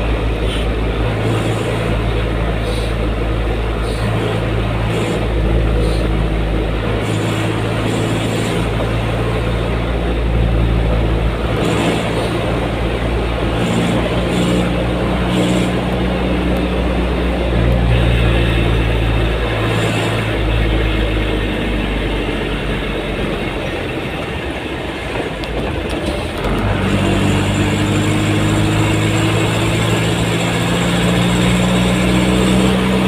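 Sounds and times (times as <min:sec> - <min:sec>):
vehicle engine and road noise: 0:00.0 - 0:33.0.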